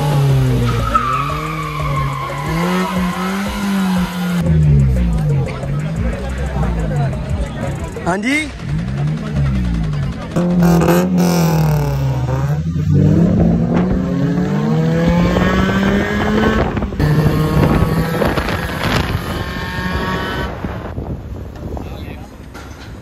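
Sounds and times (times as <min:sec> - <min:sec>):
car engine revving: 0:00.0 - 0:21.0.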